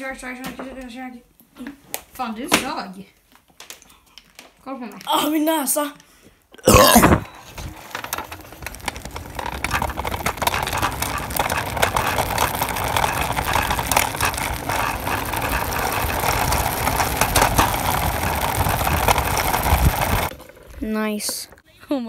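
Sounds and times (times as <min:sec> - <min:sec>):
small wheels rolling on pavement: 0:07.2 - 0:21.7
wind: 0:07.2 - 0:21.9
small rattling knocks: 0:07.4 - 0:21.6.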